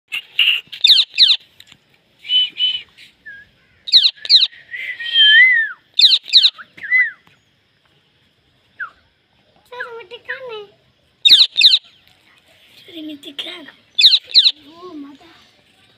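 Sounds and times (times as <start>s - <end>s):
parakeet chattering calls: 0.1s - 1.4s, 3.8s - 4.5s, 6.0s - 6.6s, 11.2s - 12.0s, 13.9s - 14.7s
parakeet whistles: 3.3s - 7.2s, 11.3s - 11.8s, 14.0s - 14.6s.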